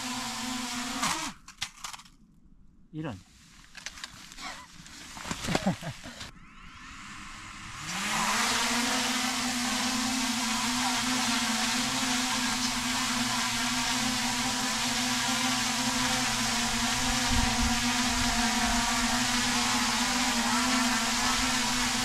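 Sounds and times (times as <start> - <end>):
drone propellers whirring: 6.1 - 22.0.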